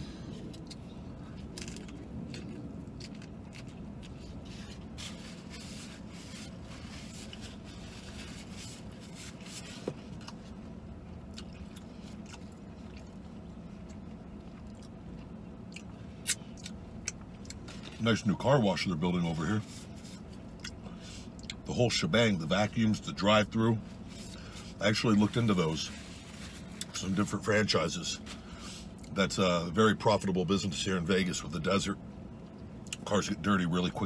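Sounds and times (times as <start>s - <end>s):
person chewing food: 0.0s - 18.0s, 20.4s - 21.6s
vehicle cabin hum: 0.0s - 34.0s.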